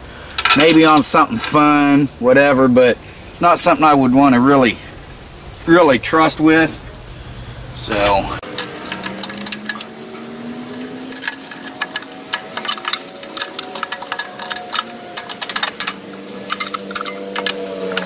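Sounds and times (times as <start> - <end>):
steady mechanical hum: 0.0 - 18.0
screwdriver metal clicks and scrapes: 11.1 - 18.0.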